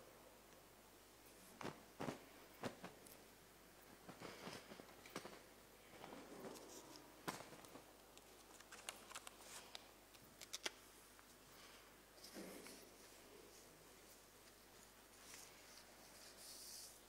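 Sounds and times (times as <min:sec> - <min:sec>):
soft rustles: 0:01.2 - 0:17.0.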